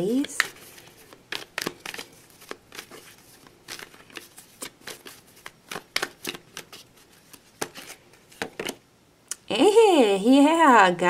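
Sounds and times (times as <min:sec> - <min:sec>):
cards being shuffled: 0:00.0 - 0:08.8.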